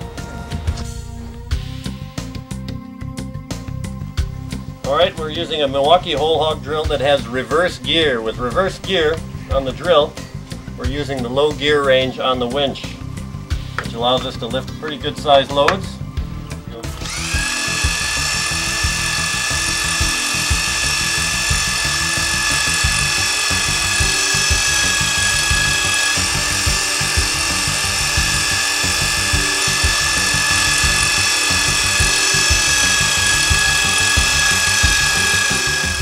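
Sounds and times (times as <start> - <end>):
drill whining: 15.6 - 36.0.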